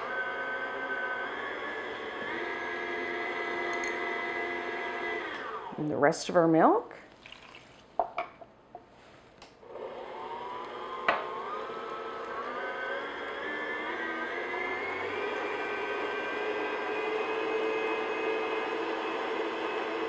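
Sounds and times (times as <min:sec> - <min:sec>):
stand mixer motor whine: 0:00.0 - 0:05.7, 0:09.6 - 0:20.0.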